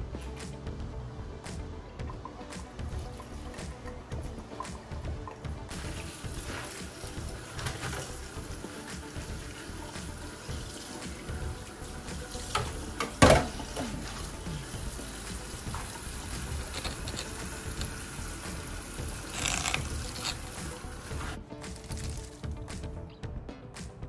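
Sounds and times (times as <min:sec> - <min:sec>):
hands rinsing greens in colander: 0:05.7 - 0:22.5
tap running into steel sink: 0:12.5 - 0:13.9.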